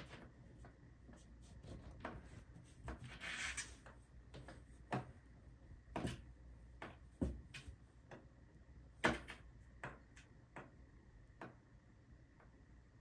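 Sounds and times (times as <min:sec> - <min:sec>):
kitten claws scratching cardboard: 0:01.1 - 0:04.6.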